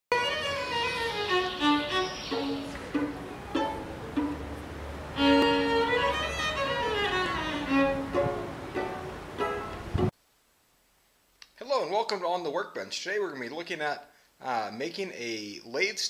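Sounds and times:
instrumental intro music: 0.1 - 10.1.

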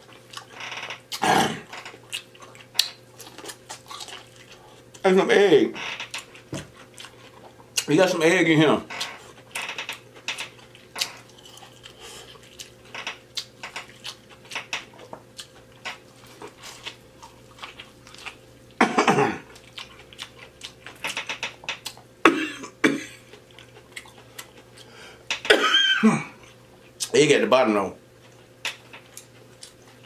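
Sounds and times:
throat sounds: 1.2 - 1.7
wet lip smacks and chewing: 2.1 - 4.6.

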